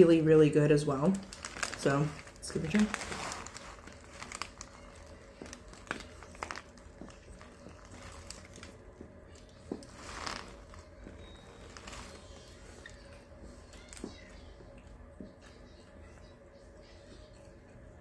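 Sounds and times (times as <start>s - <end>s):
person chewing food: 3.0s - 15.9s.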